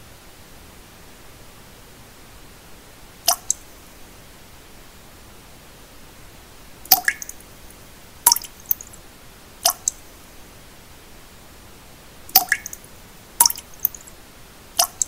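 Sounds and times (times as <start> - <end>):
steady hiss: 0.0 - 15.0
water droplets plinking: 3.3 - 3.6, 6.9 - 7.4, 8.3 - 9.0, 9.7 - 10.0, 12.3 - 12.8, 13.4 - 14.1, 14.8 - 15.0.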